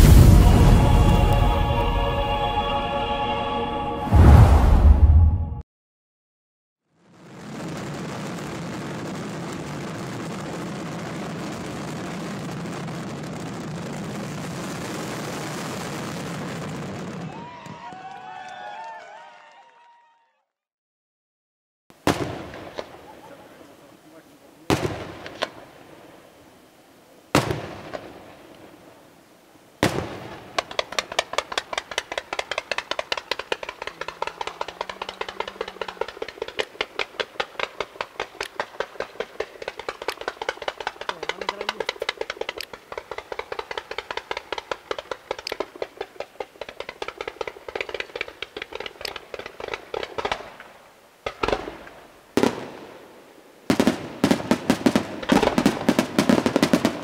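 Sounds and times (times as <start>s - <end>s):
rapid firework barrage: 0.0s - 1.4s, 7.1s - 17.9s, 22.0s - 26.1s, 27.3s - 28.7s, 29.8s - 57.0s
firework bangs: 0.0s - 2.0s, 7.2s - 18.1s, 22.0s - 26.2s, 27.3s - 28.8s, 29.8s - 57.0s.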